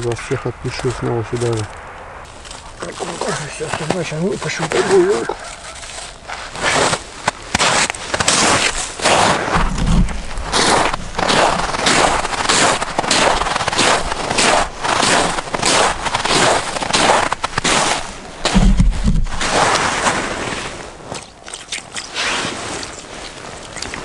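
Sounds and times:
footsteps crunching through snow: 0.0s - 24.0s
low thumps on microphone: 9.5s - 11.6s, 18.4s - 19.5s.

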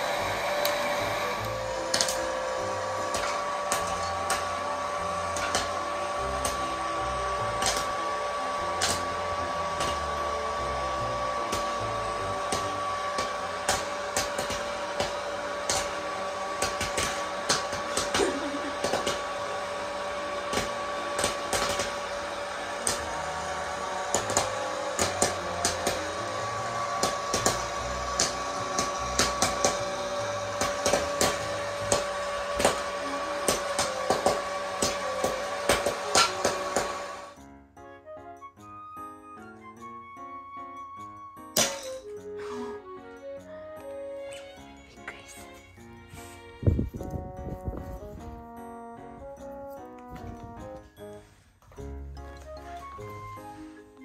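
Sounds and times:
popcorn popper fan whirring: 0.0s - 37.5s, 40.8s - 49.2s
popcorn kernels popping: 1.4s - 37.3s.

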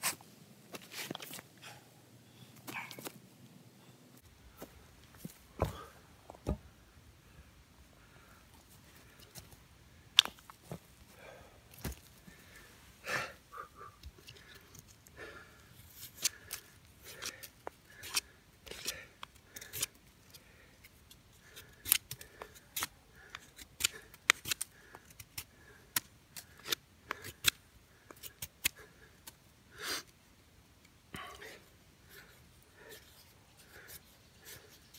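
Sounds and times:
knife shaving wood: 15.8s - 20.0s, 20.8s - 29.4s.

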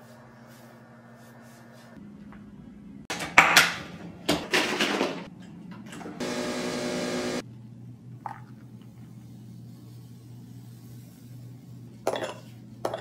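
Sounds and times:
coffee machine motor buzz: 6.2s - 7.4s
coffee machine rough bursts: 6.2s - 7.4s.

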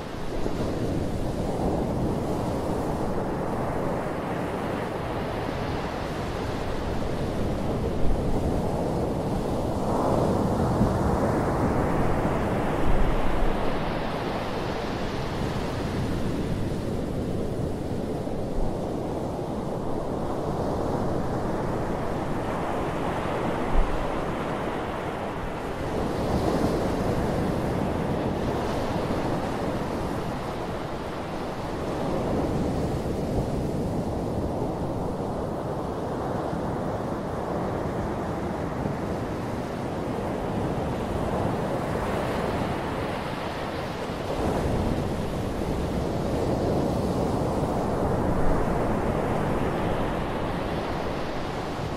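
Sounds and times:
waves breaking on beach: 0.0s - 51.9s
wind rumbling on microphone: 0.0s - 51.9s.

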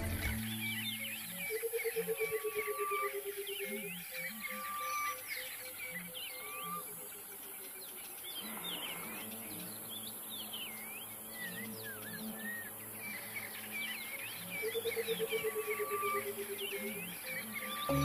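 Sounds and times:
birds calling: 0.0s - 18.0s
soft background music: 14.0s - 18.0s.

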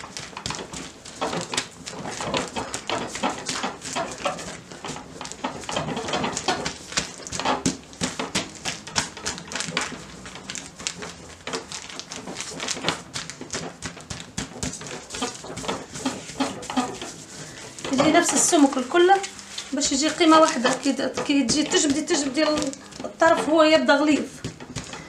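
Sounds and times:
hands patting minced meat: 0.0s - 23.5s, 24.1s - 25.0s
plastic bag crinkling: 6.3s - 25.0s.

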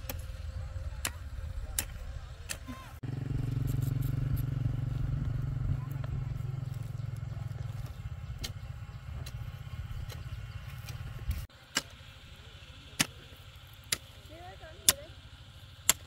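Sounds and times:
engine rumbling: 0.0s - 16.0s
hoe chopping dry soil: 5.9s - 12.2s, 12.8s - 16.0s.

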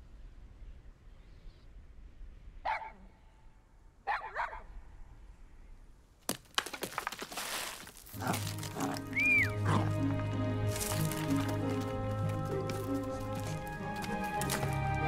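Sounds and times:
dog barking: 2.6s - 3.1s, 4.0s - 4.7s.

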